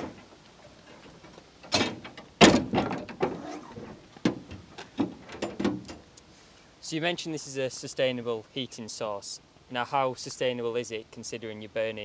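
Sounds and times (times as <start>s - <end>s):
heavy door thud: 1.7s - 3.3s
metal latch clunks: 1.7s - 3.4s, 4.2s - 6.0s.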